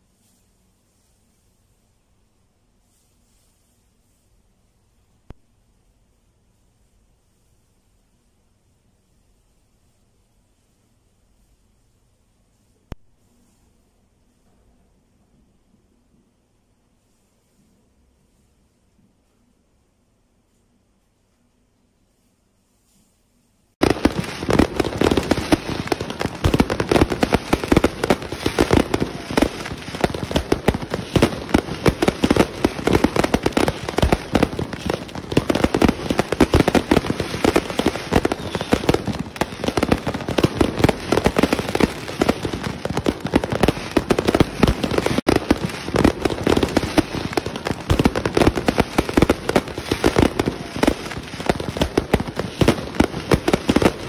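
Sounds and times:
fireworks bangs and crackling: 23.8 - 54.0.

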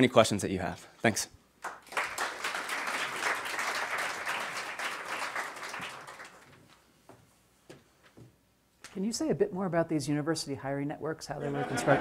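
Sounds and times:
audience applauding: 1.6 - 6.6.

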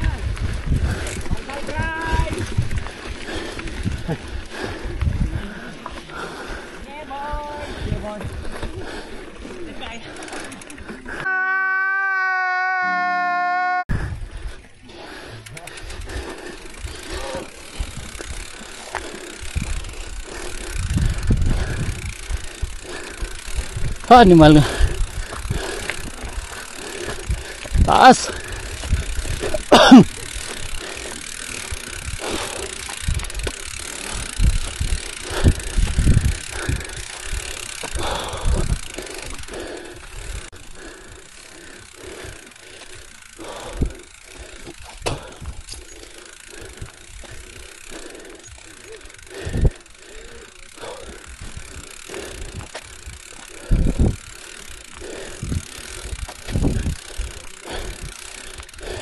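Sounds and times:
wind and tyre noise: 0.0 - 11.4, 13.0 - 59.0
bike thumps and rattles: 44.6 - 45.8.

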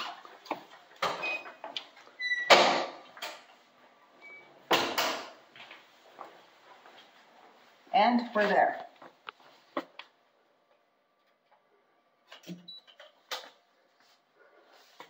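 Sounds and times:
loud door noise: 2.4 - 3.0.

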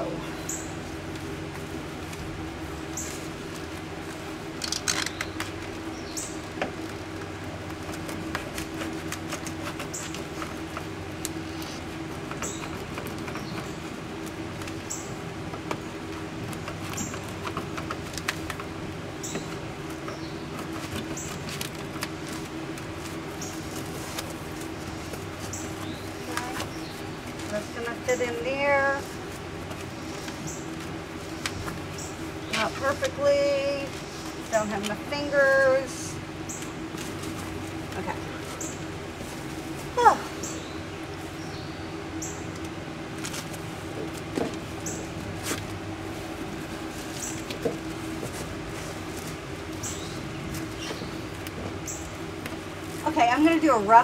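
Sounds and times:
steady low hum: 0.0 - 54.0
foam insulation clicks and rustles: 1.0 - 35.9.

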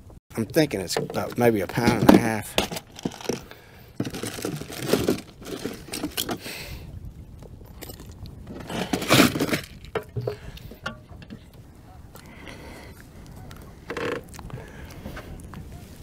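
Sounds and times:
plastic trays and bottles knocking: 0.4 - 6.4, 8.6 - 11.5
metal chain rattling: 2.6 - 6.4, 7.6 - 11.6.

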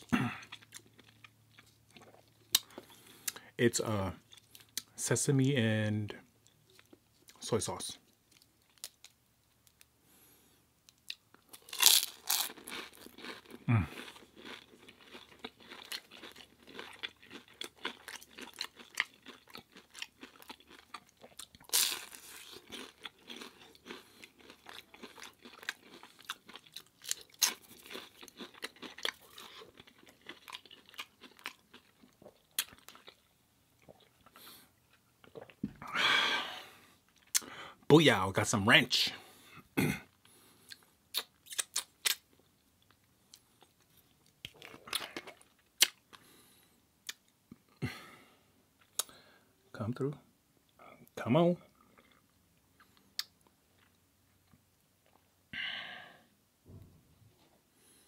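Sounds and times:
person chewing crunchy food: 0.0 - 3.4, 11.0 - 35.6, 40.1 - 47.8, 51.7 - 54.0
loud crunching bites: 11.5 - 31.6.

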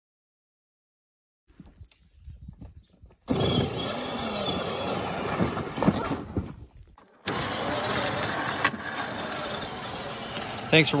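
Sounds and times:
tyres on snow: 3.2 - 11.0
electric motor whine: 3.3 - 5.4, 7.2 - 11.0.

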